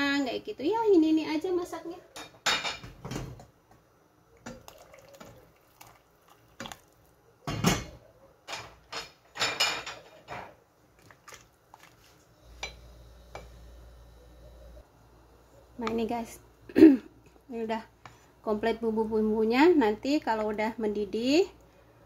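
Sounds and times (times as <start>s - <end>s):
pots and utensils clinking: 7.4s - 10.6s.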